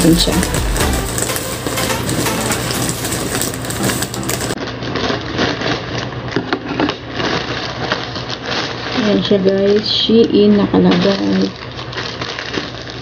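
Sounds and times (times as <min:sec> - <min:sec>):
machine hum: 0:00.0 - 0:04.6
plastic rustling: 0:00.0 - 0:13.0.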